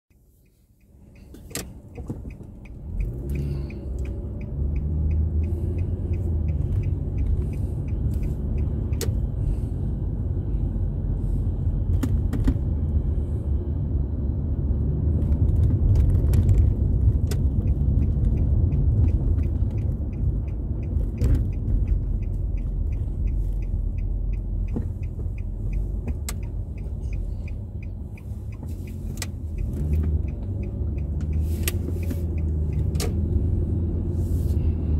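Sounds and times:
light ticking: 0.1 - 9.4, 17.2 - 33.4
engine and road noise: 0.1 - 34.9.

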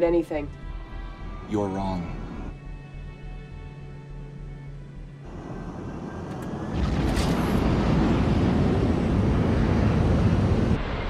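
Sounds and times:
jet engines rumbling: 5.2 - 11.0.

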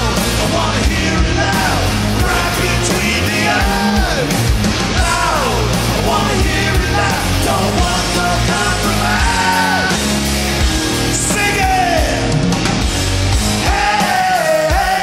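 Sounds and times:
hard rock band playing: 0.0 - 15.0
man yelling: 11.2 - 12.3.

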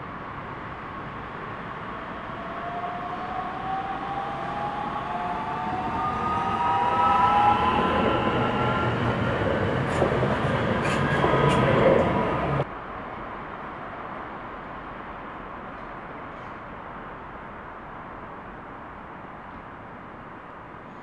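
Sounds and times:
electric train traction whine: 1.7 - 12.6.

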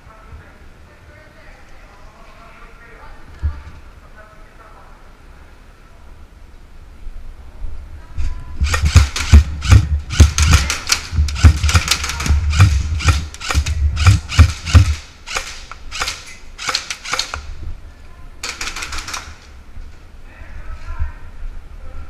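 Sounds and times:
airsoft guns firing: 8.6 - 17.6, 18.4 - 19.5
low thumps: 8.6 - 17.8.

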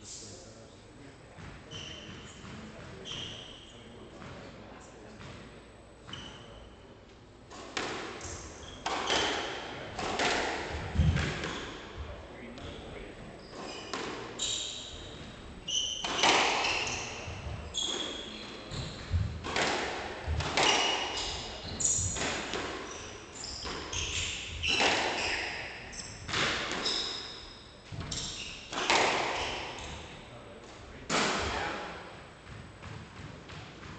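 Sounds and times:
shoes squeaking on hardwood floor: 1.4 - 3.9, 13.4 - 19.2, 20.3 - 30.1
squash ball hitting rackets and walls: 1.4 - 4.4, 7.4 - 30.3, 31.0 - 33.9.

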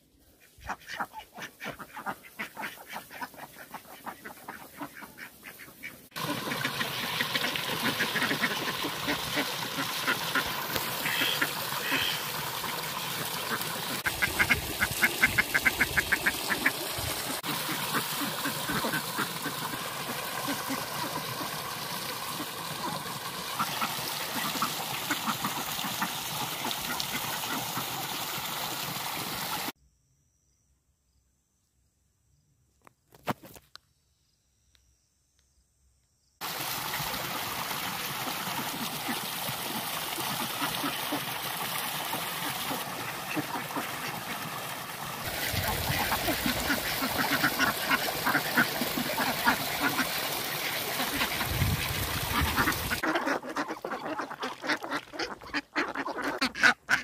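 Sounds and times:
ducks quacking: 0.4 - 28.0, 40.1 - 41.4, 42.2 - 44.7, 45.3 - 57.0.

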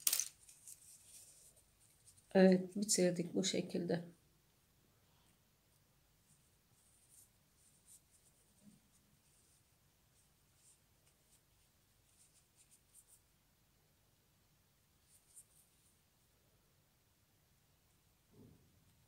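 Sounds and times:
soft rustles of knitted fabric: 0.3 - 3.8, 4.9 - 13.3, 14.9 - 16.3.

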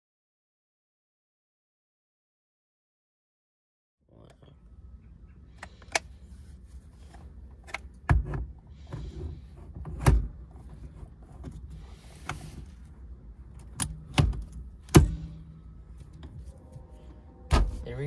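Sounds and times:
steering wheel latching clicks: 13.5 - 15.2.

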